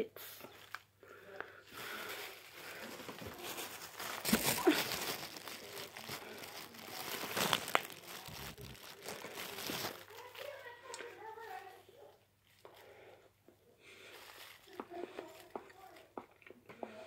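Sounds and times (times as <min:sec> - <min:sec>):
plastic container crinkling: 0:01.7 - 0:11.8, 0:14.1 - 0:16.1.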